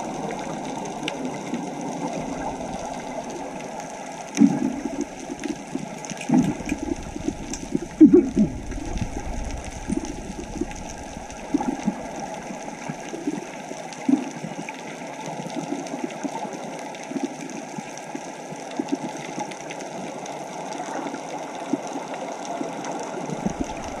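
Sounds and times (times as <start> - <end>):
muffled underwater water rush: 0.0 - 24.0
low bubbling pops: 4.4 - 13.5, 23.3 - 24.0.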